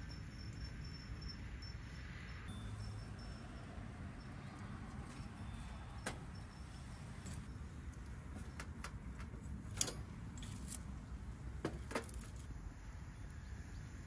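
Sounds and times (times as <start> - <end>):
clicks and clinks on metal grill: 8.5 - 10.9.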